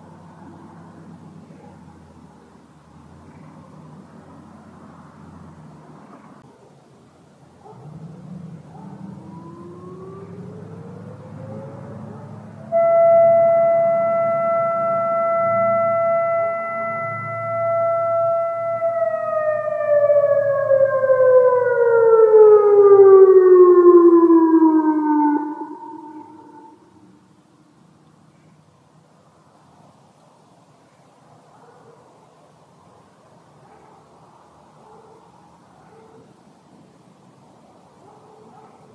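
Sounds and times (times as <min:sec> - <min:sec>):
outdoor warning siren: 0:07.6 - 0:27.4.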